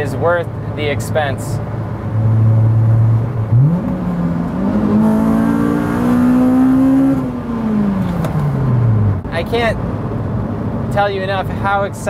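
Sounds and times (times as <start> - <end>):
car engine revving from cabin: 2.2 - 9.2.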